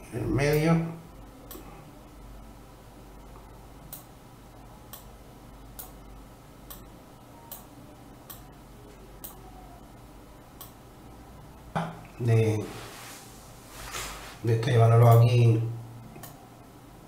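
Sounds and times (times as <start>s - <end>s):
faint low hum: 0.0s - 17.0s
computer mouse clicking: 5.7s - 6.0s.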